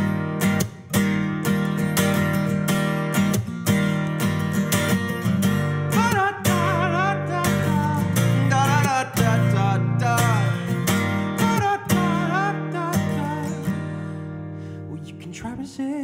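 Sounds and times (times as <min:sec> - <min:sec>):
acoustic guitar strumming: 0:00.0 - 0:15.6
man singing: 0:05.8 - 0:13.9, 0:14.9 - 0:16.0.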